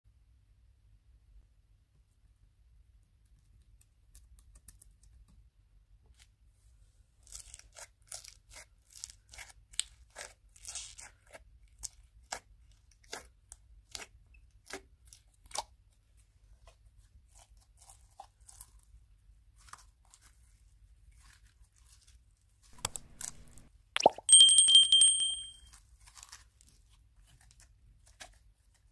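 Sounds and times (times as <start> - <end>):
slime popping and crackling: 22.8 - 24.3.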